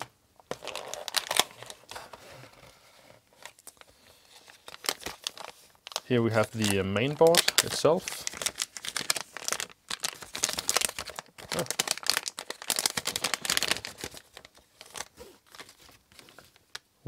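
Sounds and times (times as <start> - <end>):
plastic bag crinkling: 0.5 - 2.1, 3.4 - 16.8.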